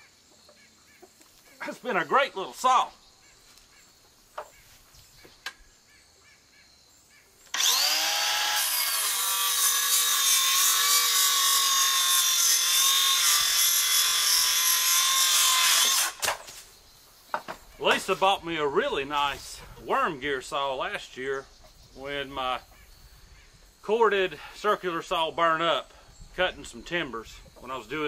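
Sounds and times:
circular saw cutting wood: 7.5 - 16.5.

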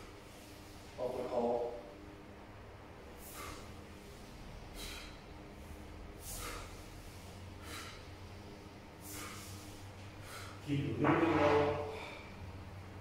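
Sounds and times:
short sharp exhalations: 3.2 - 8.4, 9.0 - 10.6.

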